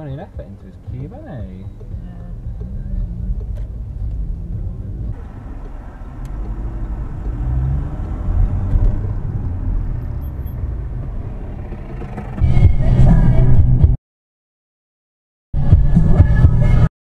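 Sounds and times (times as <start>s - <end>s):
road rumble: 0.0s - 14.0s
car engine from inside cabin: 1.4s - 13.9s.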